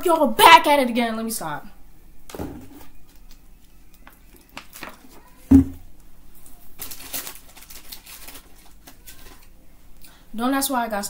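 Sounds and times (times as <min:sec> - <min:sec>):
loud thump: 0:05.5 - 0:05.8.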